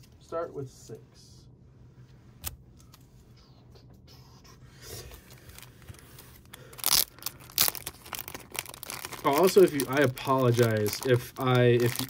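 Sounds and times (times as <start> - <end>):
cards scraping and rustling: 4.9 - 12.0
plastic bag crinkling: 5.4 - 12.0.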